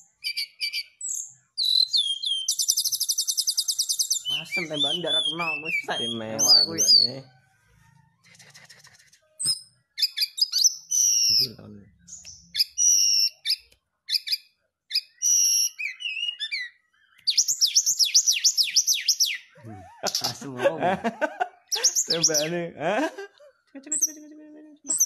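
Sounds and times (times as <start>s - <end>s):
bird singing whistled notes: 0.1s - 7.3s, 9.4s - 20.4s, 21.7s - 22.5s.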